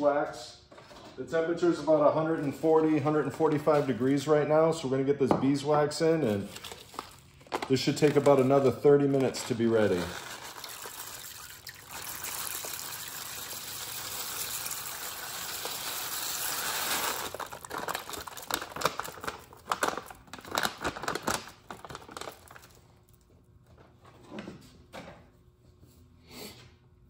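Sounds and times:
bag crinkling and rattling: 6.4s - 23.0s
pellets pouring in a stream: 9.6s - 19.0s.

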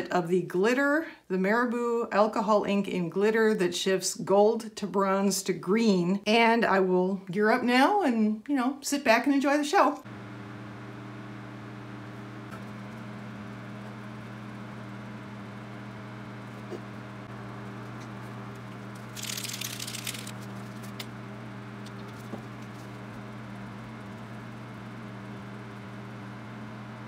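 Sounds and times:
small electric motor humming: 10.0s - 27.0s
stick stirring resin in plastic cup: 17.9s - 21.1s.

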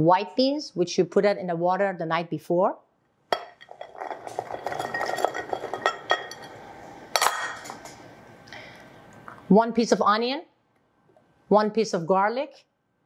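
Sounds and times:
glass clink: 3.4s - 6.6s.

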